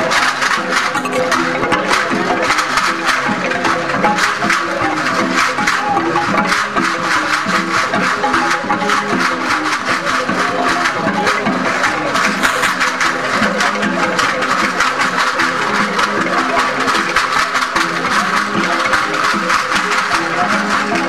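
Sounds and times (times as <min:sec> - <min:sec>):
fast percussive dance music: 0:00.7 - 0:21.0
melody of short notes: 0:01.0 - 0:02.0.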